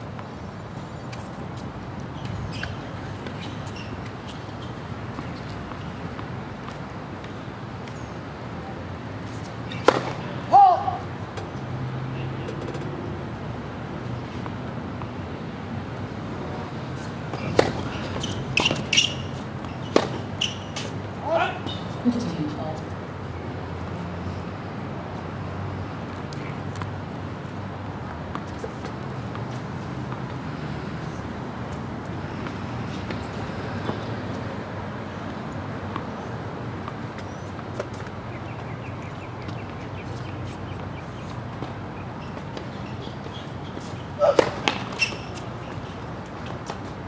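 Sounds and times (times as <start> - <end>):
tennis ball hit by racket: 9.7 - 11.0, 17.3 - 19.3, 19.9 - 20.9, 43.8 - 45.5
ball bouncing on hard court: 44.2 - 45.4.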